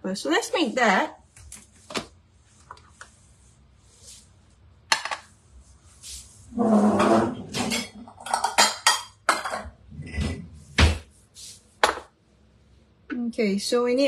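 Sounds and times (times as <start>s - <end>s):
ceramic bowl and utensils clattering: 6.9s - 10.4s.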